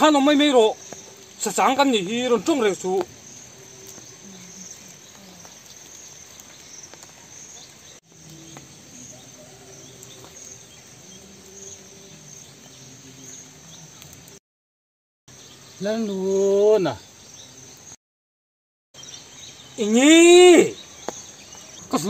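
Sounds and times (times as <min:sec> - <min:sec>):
insects chirping: 0:00.0 - 0:14.4, 0:15.3 - 0:18.0, 0:19.0 - 0:22.0.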